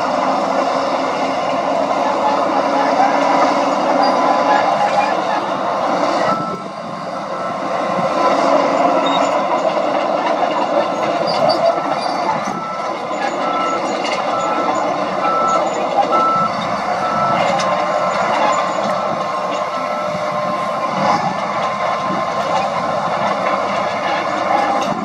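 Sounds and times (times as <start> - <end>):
diesel earthmoving machinery: 0.0 - 25.0
reversing alarm beeping: 6.2 - 8.0, 8.7 - 9.6, 10.7 - 21.3.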